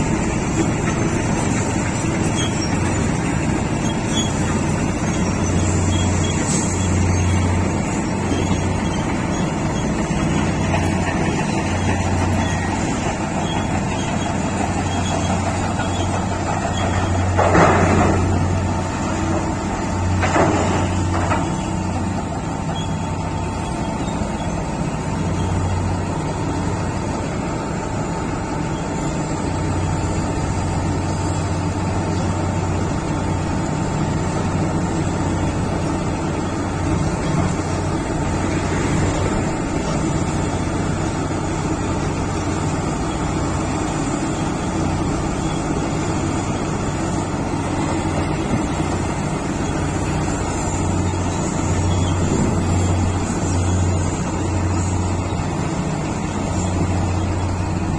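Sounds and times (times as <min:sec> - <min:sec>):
heavy diesel engines droning: 0:00.0 - 0:57.9.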